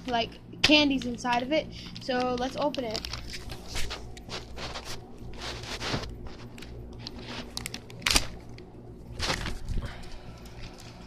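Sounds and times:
packaging torn and crinkled: 2.8 - 11.0.

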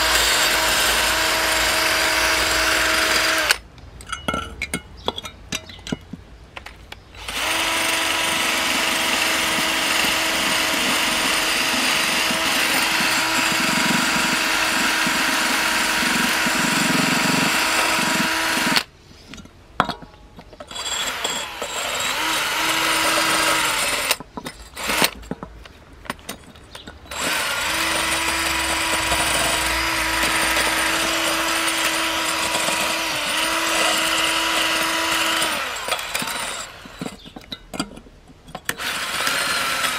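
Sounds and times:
drill with wire brush on metal: 0.0 - 3.6, 7.2 - 18.9, 20.7 - 24.2, 24.8 - 25.4, 27.1 - 37.3, 38.7 - 39.9.

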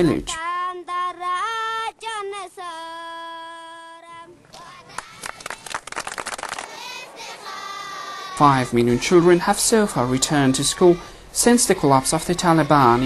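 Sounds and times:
children singing together: 0.7 - 5.4, 6.6 - 13.0
hand clapping: 4.5 - 6.8.

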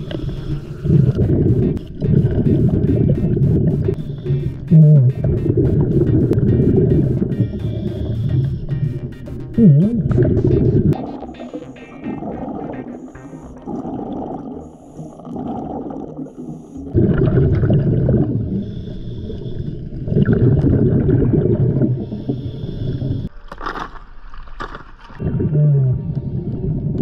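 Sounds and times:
regulator inhale hissing: 0.0 - 1.7, 14.5 - 15.6, 18.4 - 19.9, 22.0 - 23.3
water splashing: 0.0 - 8.6
exhaled bubbles bursting: 0.0 - 9.0, 9.6 - 18.6, 19.9 - 22.2.

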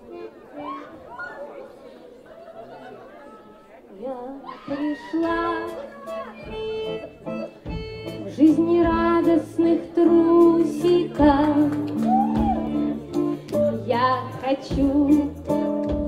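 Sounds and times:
woman singing: 4.0 - 6.3, 8.1 - 16.0
guitar: 4.6 - 16.0.

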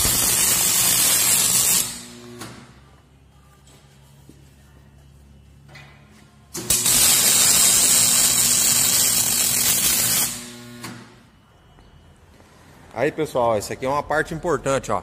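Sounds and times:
arc welding hiss: 0.0 - 2.2, 6.7 - 10.8.

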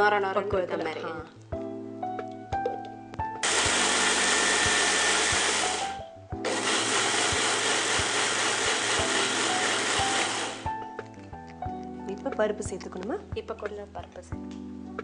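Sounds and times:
electric mixer grinder grinding: 3.4 - 10.8.

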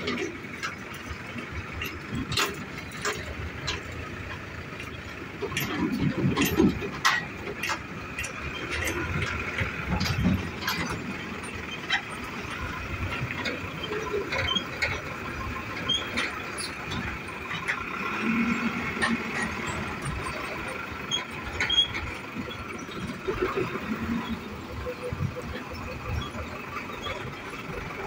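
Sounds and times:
diesel truck engines running: 0.0 - 28.0
truck bodies clanking over rails: 0.0 - 28.0.

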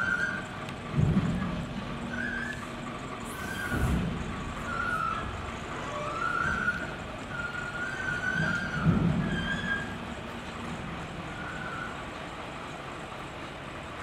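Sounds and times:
steel squealing and groaning: 0.0 - 0.6, 3.2 - 10.2
truck running: 0.0 - 14.0.

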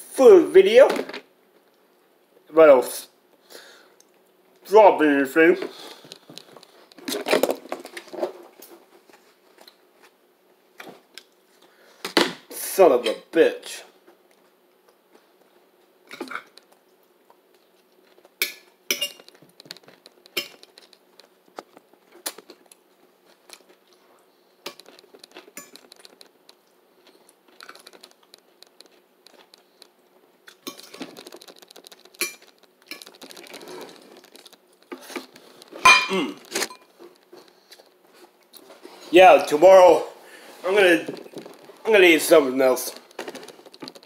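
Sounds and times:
cutlery clatter: 18.5 - 19.3, 30.6 - 31.0, 35.9 - 36.9
person chewing: 19.3 - 36.5.

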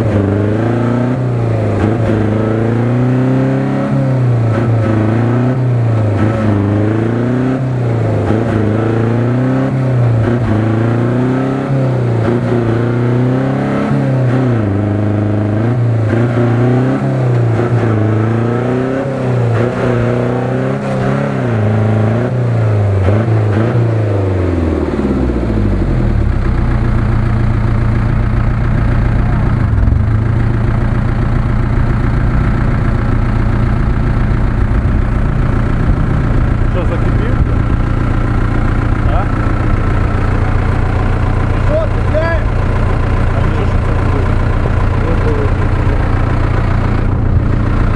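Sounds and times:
engine revving and idling: 0.0 - 47.9.

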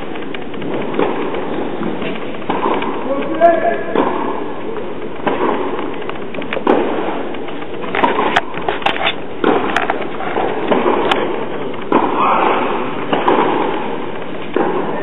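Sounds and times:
tennis ball hits and bounces: 8.0 - 13.9.

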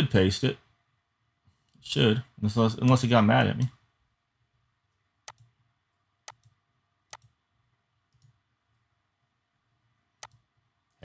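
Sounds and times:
computer mouse clicks: 5.2 - 5.5, 6.2 - 7.4, 8.1 - 8.8, 10.2 - 11.0.

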